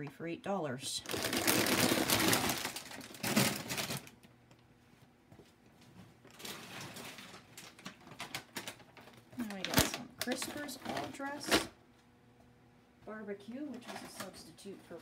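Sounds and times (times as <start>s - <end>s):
plastic bags crinkling: 1.0s - 4.3s, 6.3s - 11.7s.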